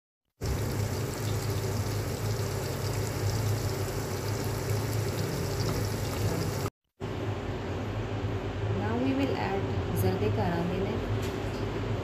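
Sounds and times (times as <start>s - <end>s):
batter bubbling in a pan: 0.4s - 6.7s
steady low hum: 0.4s - 12.0s.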